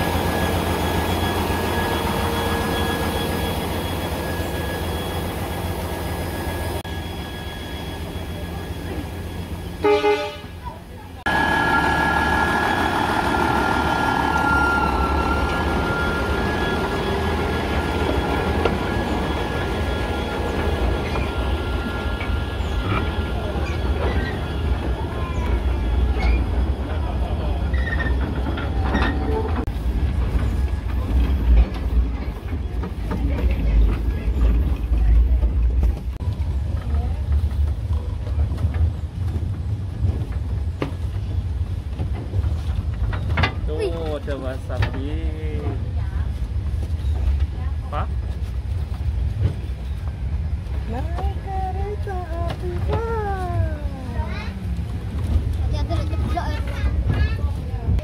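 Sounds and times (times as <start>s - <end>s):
train carriages rumbling and rattling: 0.0s - 58.0s
high metallic squeal: 0.3s - 9.8s, 11.6s - 25.2s.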